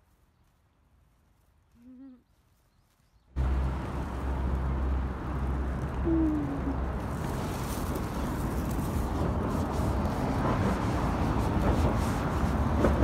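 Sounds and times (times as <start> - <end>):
cars passing rumble: 3.3 - 13.0.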